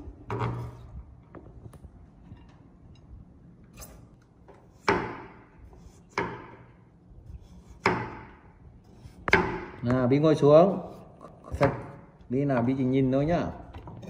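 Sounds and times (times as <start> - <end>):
knife chopping on wooden board: 4.7 - 6.7, 7.6 - 8.4, 9.0 - 9.9.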